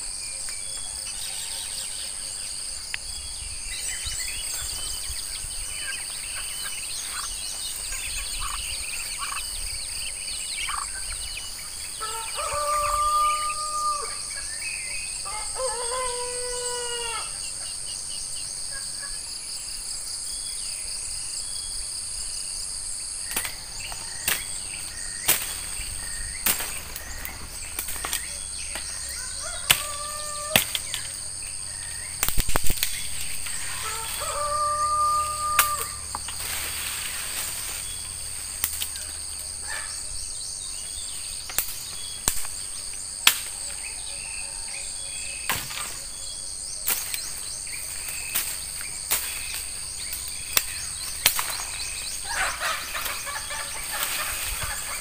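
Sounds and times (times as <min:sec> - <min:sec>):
high-pitched insect drone: 0:21.2 - 0:41.4
plant stems snapping: 0:23.3 - 0:24.6, 0:25.2 - 0:25.8, 0:26.4 - 0:29.0, 0:29.6 - 0:31.1, 0:32.2 - 0:34.2, 0:35.5 - 0:36.7, 0:38.6 - 0:39.0, 0:46.9 - 0:47.2, 0:48.1 - 0:51.8
bird calling: 0:23.3 - 0:36.4.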